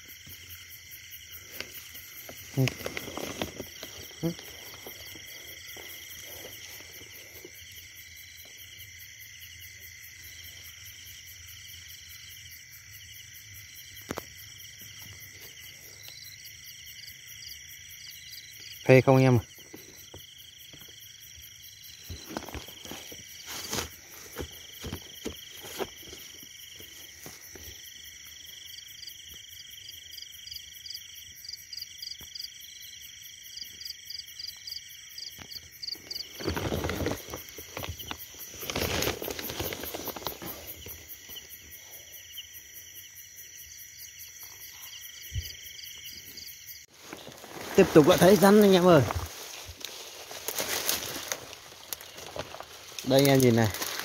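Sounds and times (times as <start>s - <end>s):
crickets and insects trilling: 0.0s - 54.0s
rustling bursts: 36.3s - 40.9s.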